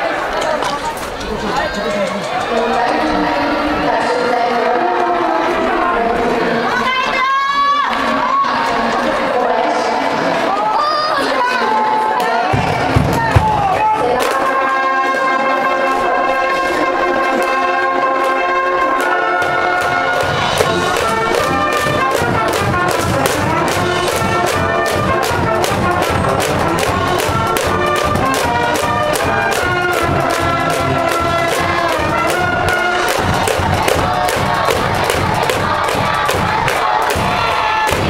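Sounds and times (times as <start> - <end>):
brass band playing: 13.6 - 38.0
steady drum beat: 19.9 - 38.0.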